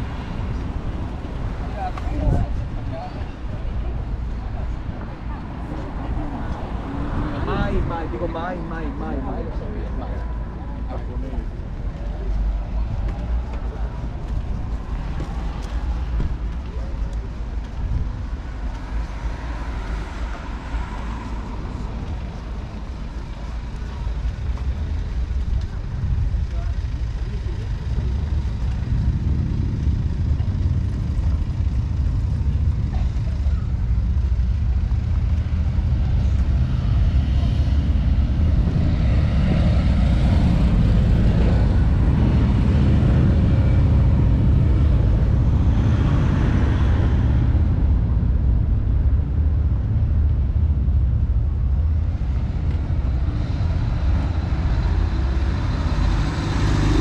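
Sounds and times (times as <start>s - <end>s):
cars passing: 0.0s - 57.0s
low traffic rumble: 0.0s - 57.0s
truck passing close: 19.8s - 57.0s
motorcycle passing: 26.4s - 48.3s, 51.9s - 57.0s.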